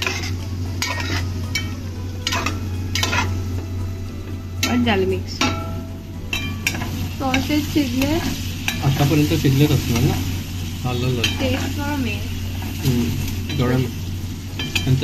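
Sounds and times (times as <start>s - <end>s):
metal spatula scraping a pan: 0.0s - 3.5s, 6.3s - 10.6s
steady low hum: 0.0s - 15.0s.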